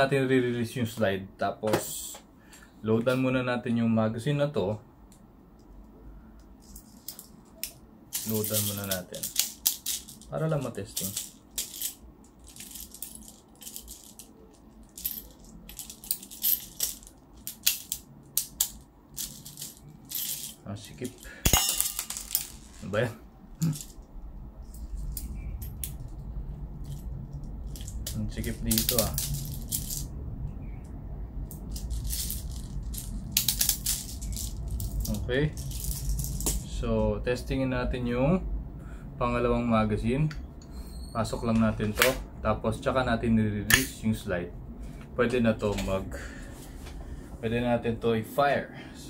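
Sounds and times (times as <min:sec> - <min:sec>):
clicks and rattles of loading pellets: 0:06.6 - 0:22.9, 0:26.8 - 0:30.1, 0:31.5 - 0:36.7.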